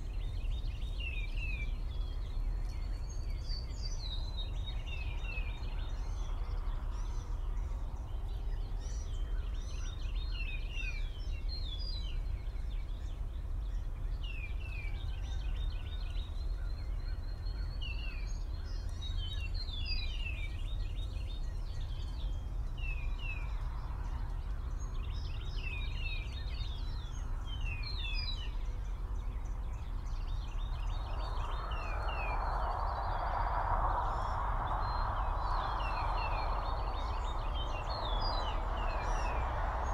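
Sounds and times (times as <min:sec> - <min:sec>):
songbirds chirping: 0:00.0 - 0:39.9
steady low rumble: 0:12.1 - 0:39.9.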